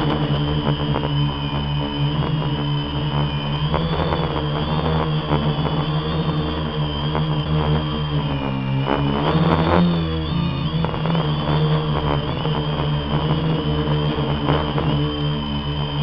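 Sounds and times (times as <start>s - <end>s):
drone propellers droning: 0.0s - 16.0s
high motor whine: 0.0s - 16.0s.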